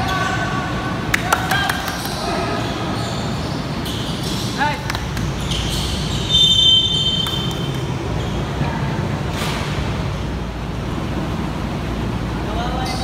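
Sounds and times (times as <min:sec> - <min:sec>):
gym hall background din: 0:00.0 - 0:13.0
referee's whistle blast: 0:06.3 - 0:07.6.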